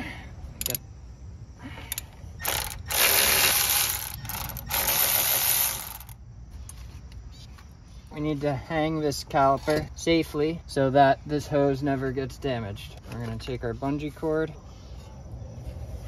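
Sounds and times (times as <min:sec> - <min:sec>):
ratchet clicking: 0:00.6 - 0:00.8, 0:01.9 - 0:06.2.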